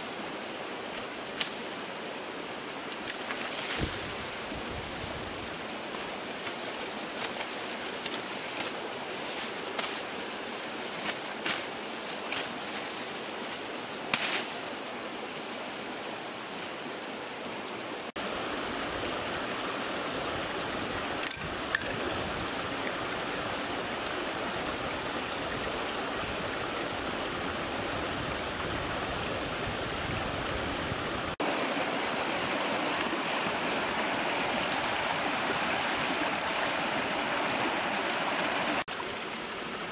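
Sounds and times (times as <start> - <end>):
rushing rocky stream: 0.0 - 39.9
twigs and leaves snapping: 0.9 - 1.6, 2.9 - 3.9.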